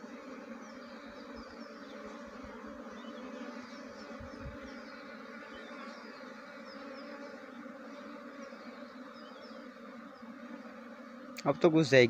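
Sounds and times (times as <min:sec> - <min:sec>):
bee swarm buzzing: 0:00.0 - 0:12.0.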